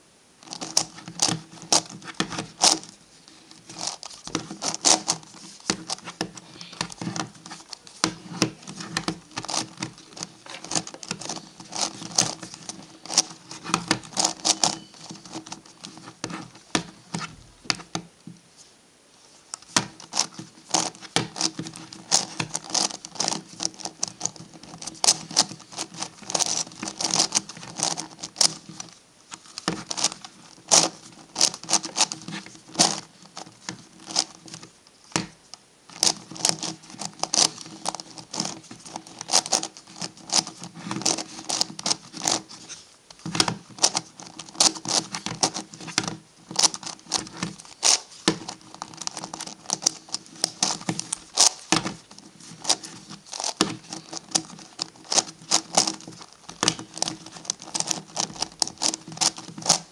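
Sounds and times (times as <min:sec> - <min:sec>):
plastic puzzle clicking: 0:19.6 - 0:34.6, 0:35.9 - 0:59.9.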